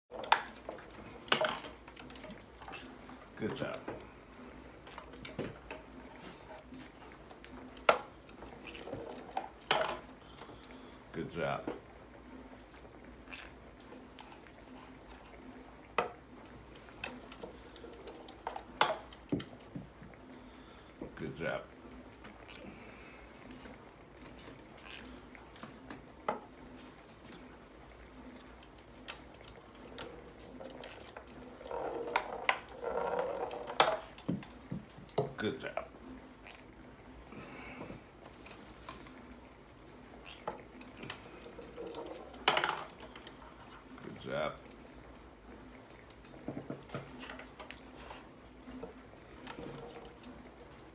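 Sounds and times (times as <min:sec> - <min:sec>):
birds moving on wooden board: 0:00.1 - 0:36.5, 0:37.3 - 0:50.9.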